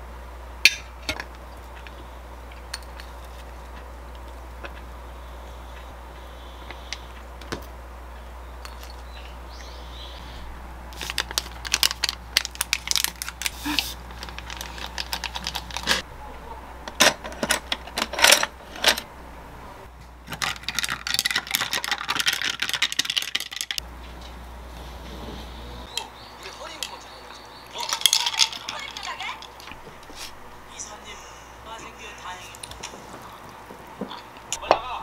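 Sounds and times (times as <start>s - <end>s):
stirrer clinking against glass: 27.8s - 29.6s.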